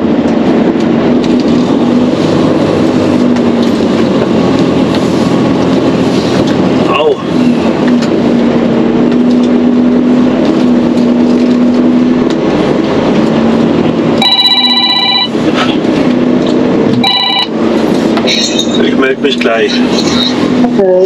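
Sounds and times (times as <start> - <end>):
truck engine drone in cab: 0.0 - 21.0
electronic ringing tone: 14.2 - 15.4, 17.0 - 17.6.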